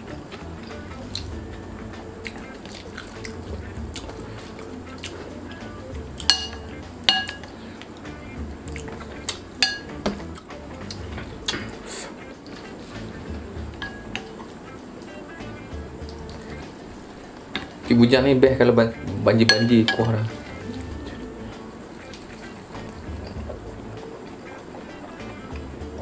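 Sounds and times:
quiet background music: 0.0s - 26.0s
metallic clinks: 6.2s - 7.6s, 8.8s - 10.2s.

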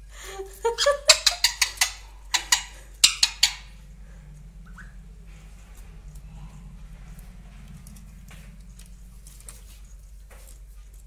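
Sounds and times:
parakeet screeching: 0.8s - 3.8s.

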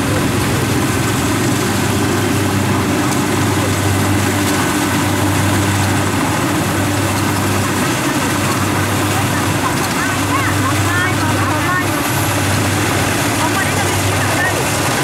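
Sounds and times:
combine harvester diesel engine drone: 0.0s - 15.0s.

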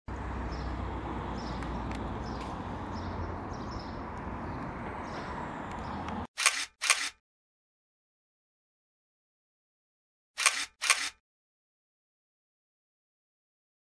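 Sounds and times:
outdoor background hum: 0.1s - 6.3s
sharp clicks: 10.4s - 11.2s.

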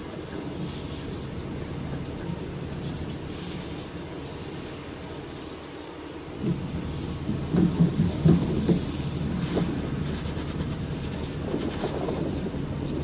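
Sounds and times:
knocks and clatter: 6.4s - 8.8s.

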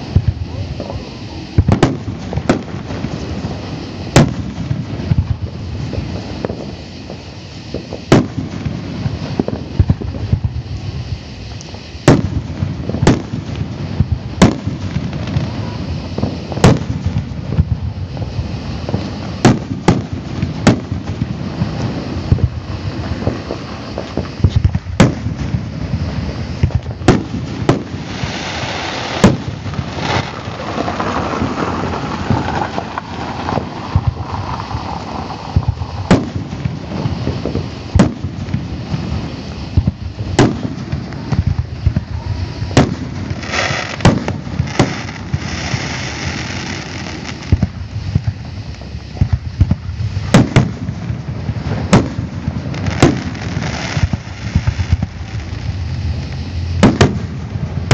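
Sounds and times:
fireworks bangs: 0.0s - 57.9s
hissing crackle: 0.0s - 57.9s
low rumble: 29.5s - 43.4s, 44.2s - 57.9s.

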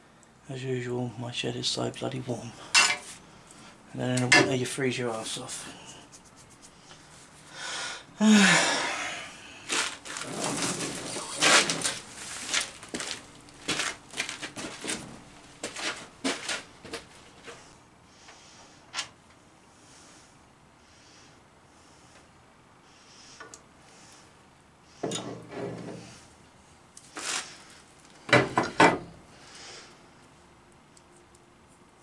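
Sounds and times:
metal tools clinking and rattling: 2.8s - 3.1s
breathy sigh: 7.5s - 9.7s.

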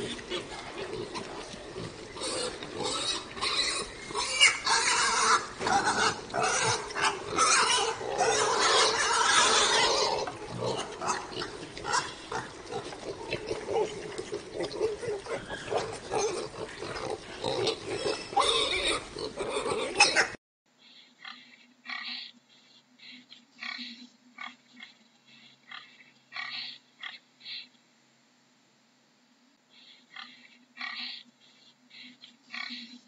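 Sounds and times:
pigs grunting and squealing: 0.0s - 20.4s.

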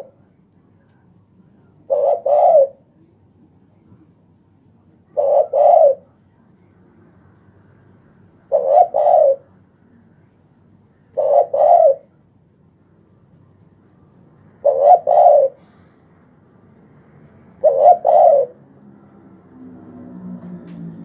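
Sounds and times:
dove cooing: 1.9s - 2.8s, 5.1s - 6.1s, 8.5s - 9.5s, 11.2s - 12.1s, 14.6s - 15.6s, 17.6s - 18.7s.

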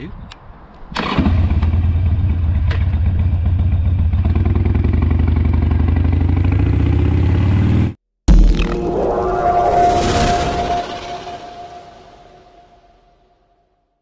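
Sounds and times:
motorcycle engine idling: 2.0s - 7.1s
loud hit: 8.3s - 13.1s.

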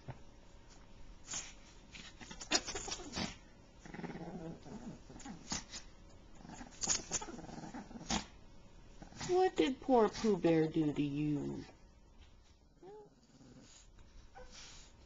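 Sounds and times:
small dog growling: 2.2s - 8.4s, 9.0s - 9.3s, 11.4s - 11.8s, 12.8s - 14.5s.

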